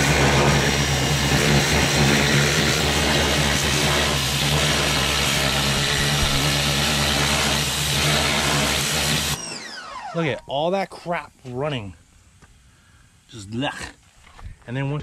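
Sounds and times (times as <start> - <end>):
pressure washer motor hum: 0.0 - 10.4.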